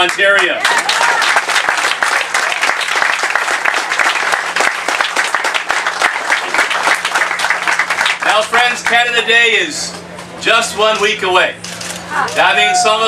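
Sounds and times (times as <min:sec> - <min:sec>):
crowd applauding: 0:00.0 - 0:09.2.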